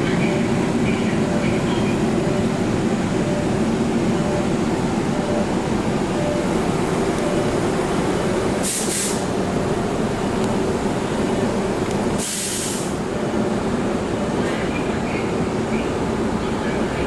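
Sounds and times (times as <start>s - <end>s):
subway train motor and wheels: 0.0s - 17.0s
burst of hiss: 8.6s - 9.3s, 12.2s - 13.0s.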